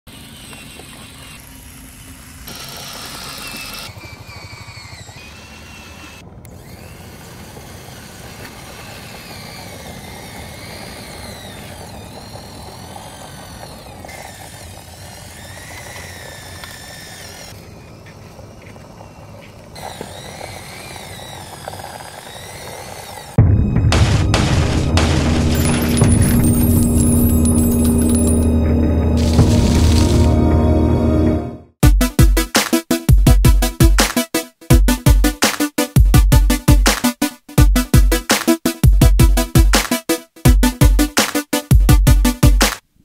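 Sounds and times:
small motor whining: 0.1 - 23.4, 25.5 - 30.4
chain drive and tracks running: 7.8 - 23.4, 24.8 - 30.3.

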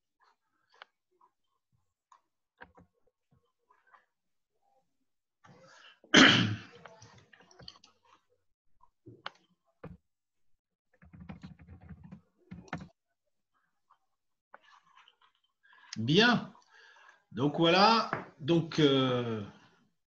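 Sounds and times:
keyboard typing: 10.9 - 13.0.

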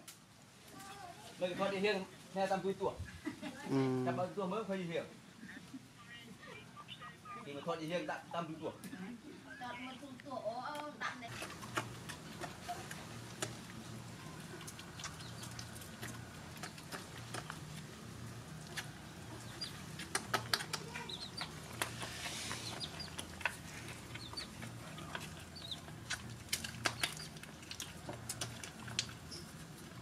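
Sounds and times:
low steady hum: 5.0 - 30.0
puppies chirping: 11.3 - 30.0
puppies lapping milk: 11.3 - 30.0.

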